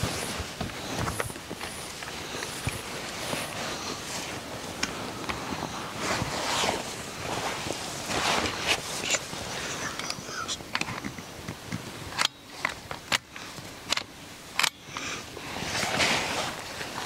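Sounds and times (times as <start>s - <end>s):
rustling: 0.0s - 12.0s, 15.0s - 17.0s
rifle clicks: 13.9s - 14.8s.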